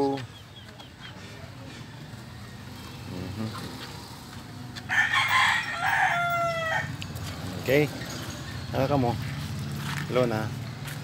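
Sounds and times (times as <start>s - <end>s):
rooster crowing: 4.9s - 7.0s.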